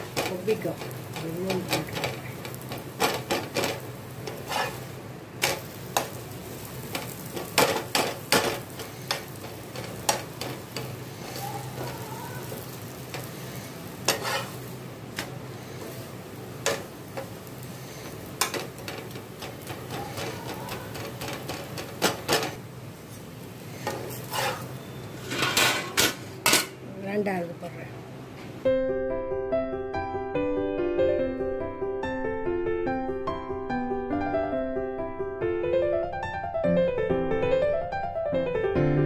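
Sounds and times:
metal spatula scraping pan: 0.0s - 6.2s, 6.9s - 16.0s, 16.6s - 22.6s, 23.8s - 26.7s
flatbread sizzling in pan: 0.0s - 26.8s.

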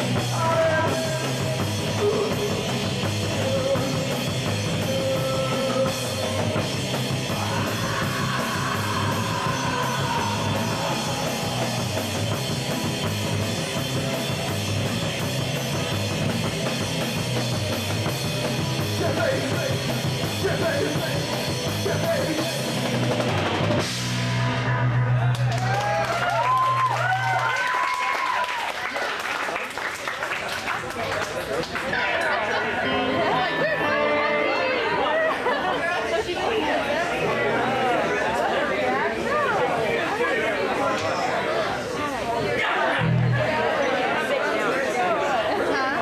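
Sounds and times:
rock band playing heavy punk: 0.0s - 25.9s, 32.3s - 36.2s, 42.6s - 43.8s.

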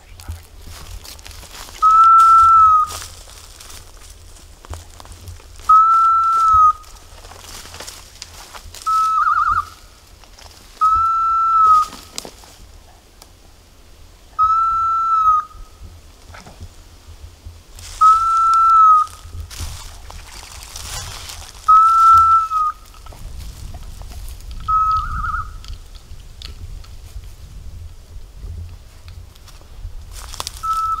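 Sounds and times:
dog whistle blasts: 1.8s - 2.9s, 5.7s - 6.8s, 14.4s - 15.4s, 18.0s - 19.1s, 21.7s - 22.8s, 24.7s - 25.6s, 30.6s - 31.0s
trilling whistle blast: 1.8s - 3.0s, 5.7s - 6.8s, 10.8s - 11.9s, 14.4s - 15.5s, 18.0s - 19.2s, 21.7s - 22.8s, 24.7s - 25.5s, 30.6s - 31.0s.

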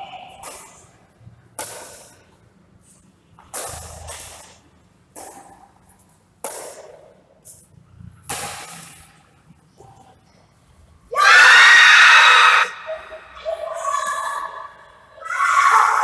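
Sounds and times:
racket hitting shuttlecock: 0.3s - 0.8s, 1.6s - 2.2s, 3.4s - 4.5s, 5.1s - 5.7s, 6.4s - 7.2s, 8.2s - 9.0s.

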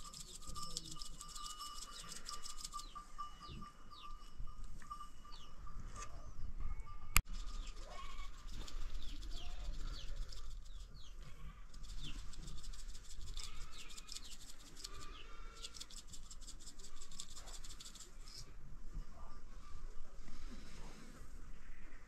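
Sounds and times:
rapid high ticking: 0.0s - 3.1s, 7.2s - 18.2s
small birds chirping: 0.0s - 4.3s, 7.3s - 18.4s.

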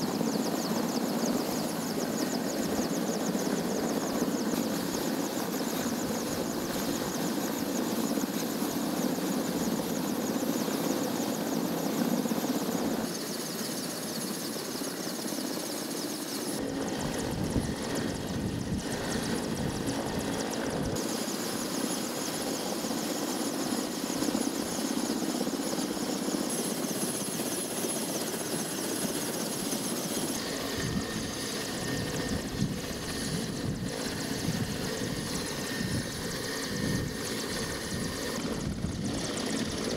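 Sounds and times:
helicopter rotor noise: 0.0s - 39.9s
helicopter turbine whine: 0.0s - 39.9s.

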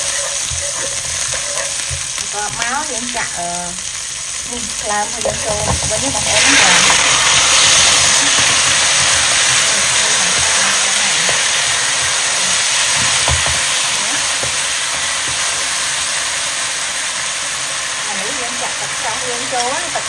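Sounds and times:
spatula scraping a wok: 0.0s - 3.3s, 4.9s - 15.7s
liver sizzling in hot oil: 0.0s - 20.0s.

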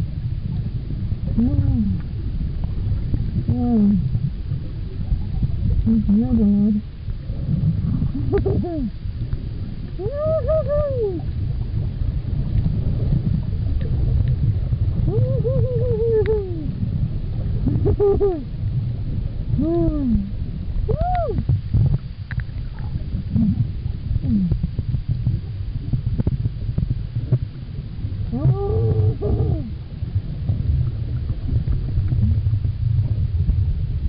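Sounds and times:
exhaust bubbles crackling: 0.0s - 34.0s
whale song moans: 9.9s - 11.4s, 15.0s - 16.9s, 23.2s - 24.8s, 28.2s - 29.9s.

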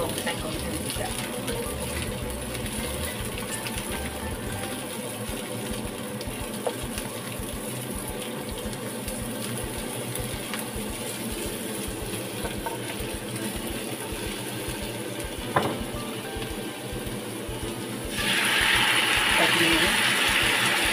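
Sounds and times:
vegetables sizzling in oil: 0.0s - 20.9s
spatula knocking a pan: 12.4s - 13.2s, 15.4s - 16.0s.

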